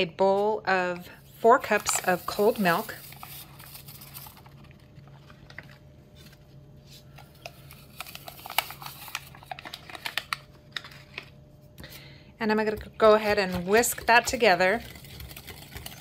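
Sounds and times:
paper pouch rustling: 1.6s - 11.2s.

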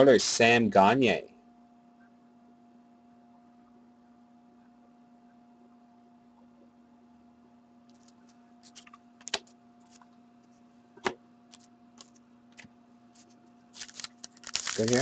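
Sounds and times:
faint electrical hum: 0.0s - 15.0s
cards clicking and rustling: 7.9s - 10.1s, 11.5s - 15.0s.

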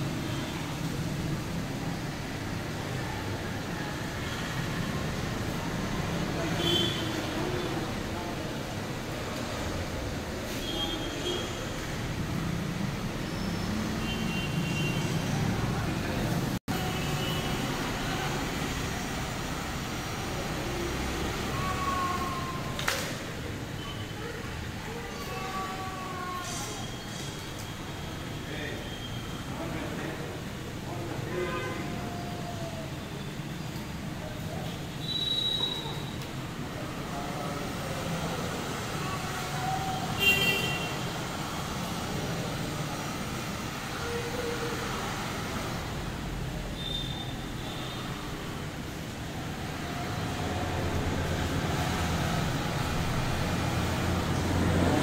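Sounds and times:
sharp squeak: 35.0s - 36.1s.

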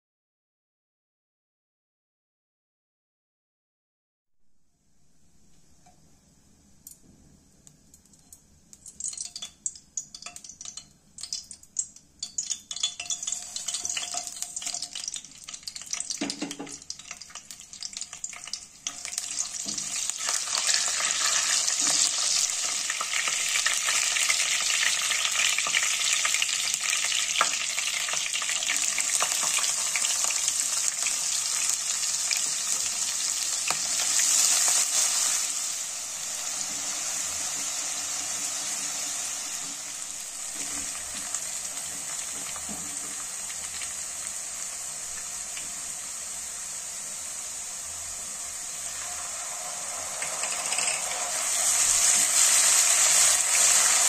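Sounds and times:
spices crackling in hot oil: 8.0s - 54.0s
onions sizzling in oil: 9.0s - 54.0s.

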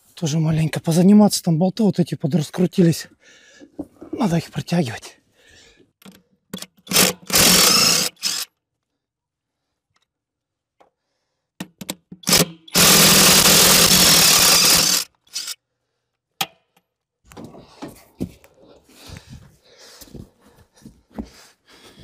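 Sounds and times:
handheld power tool rattling hum: 6.6s - 8.5s, 12.1s - 15.6s.

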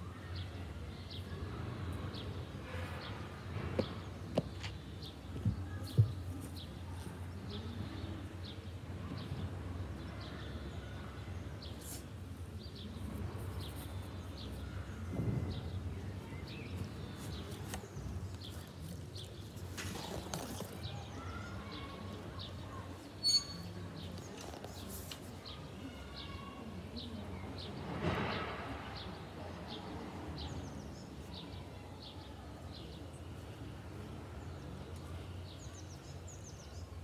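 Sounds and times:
small birds chirping: 0.3s - 27.8s
loud high-pitched squeak: 23.2s - 23.7s.

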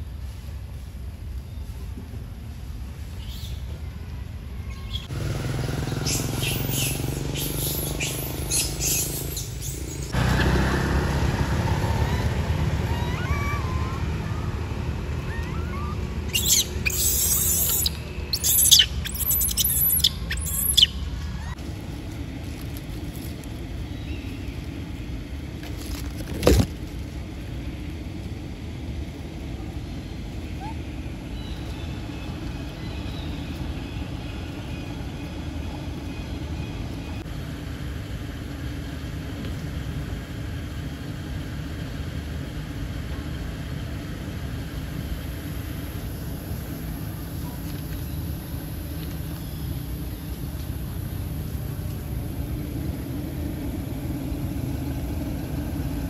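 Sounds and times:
birds chirping: 4.6s - 11.0s, 11.7s - 21.6s, 29.3s - 37.3s
steady low rumble: 6.5s - 56.0s.

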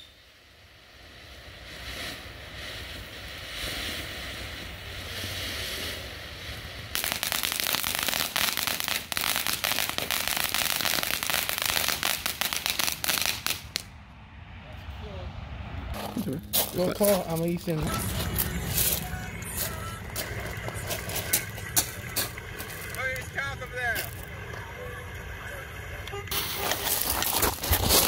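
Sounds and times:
fountain fireworks hissing: 0.0s - 13.8s, 16.0s - 28.0s
loud dense crackling: 6.0s - 13.9s, 16.0s - 24.6s, 25.2s - 28.0s.

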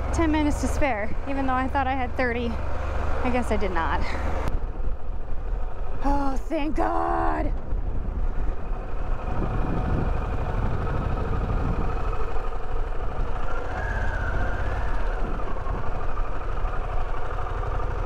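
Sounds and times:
motorcycle engine running: 0.0s - 18.0s
wind noise on microphone: 7.5s - 12.4s, 13.0s - 16.1s.

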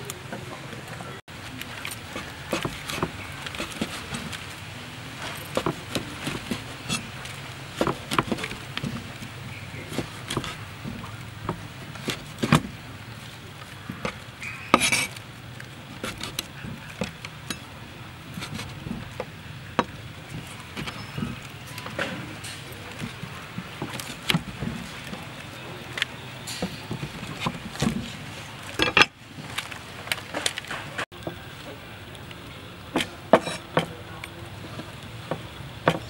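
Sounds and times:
cleaver chopping on wooden board: 2.2s - 4.4s, 7.8s - 12.7s, 32.9s - 33.9s, 35.3s - 36.0s.

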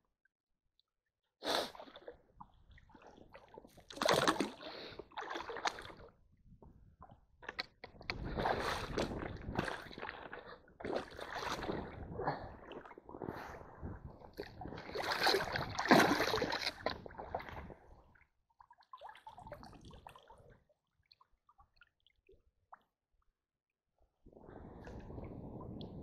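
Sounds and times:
stream water splashing: 3.9s - 4.6s, 14.9s - 17.1s.

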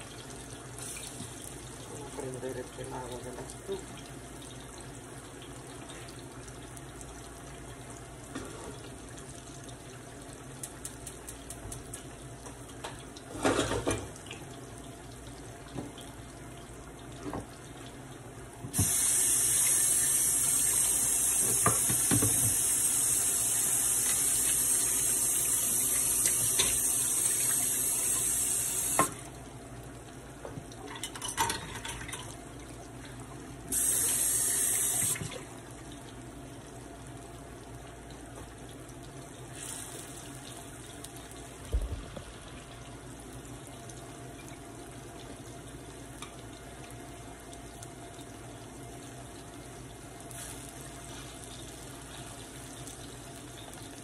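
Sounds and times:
plantains sizzling in oil: 18.8s - 29.1s, 33.7s - 35.2s.

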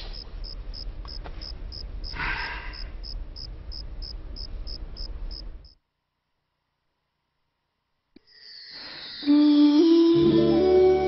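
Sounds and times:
crickets chirping: 0.0s - 5.8s.

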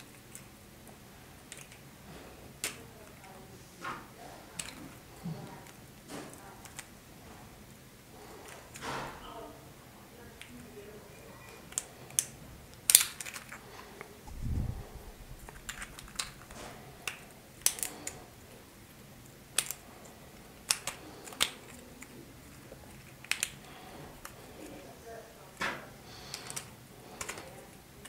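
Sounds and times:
plastic gear pieces clicking: 11.7s - 13.6s, 15.4s - 18.2s, 19.5s - 19.8s, 20.6s - 24.4s, 26.3s - 27.6s
soft low thud: 14.3s - 15.5s.

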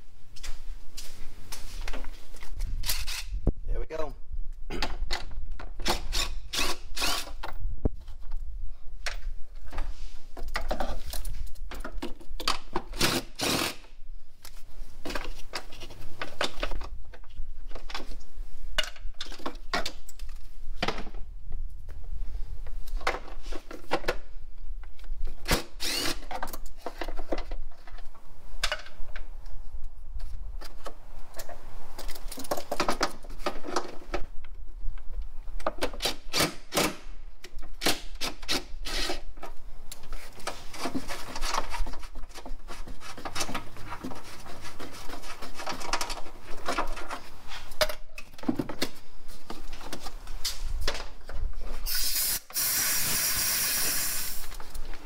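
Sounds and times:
hand tools clicking and scraping: 9.8s - 16.7s, 25.4s - 28.9s, 35.6s - 50.6s.

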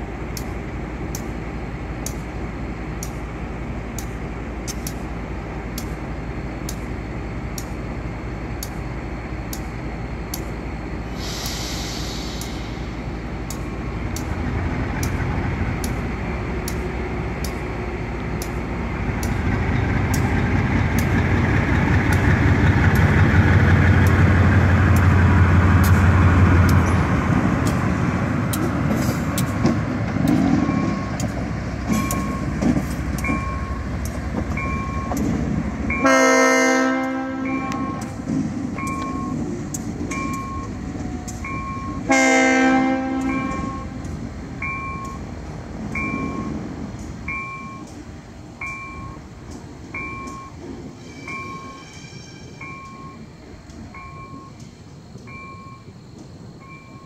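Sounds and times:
diesel locomotive engine: 0.0s - 57.0s
brief hiss: 11.2s - 13.0s
locomotive horn: 36.0s - 38.2s, 42.0s - 44.0s.

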